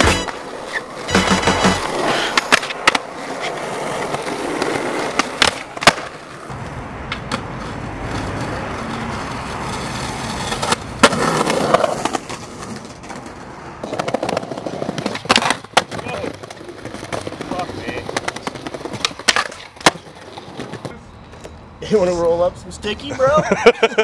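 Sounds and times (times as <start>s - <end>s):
skateboard wheels rolling on concrete: 0.0s - 24.0s
skateboard wooden clacks: 1.1s - 6.2s, 10.2s - 21.6s.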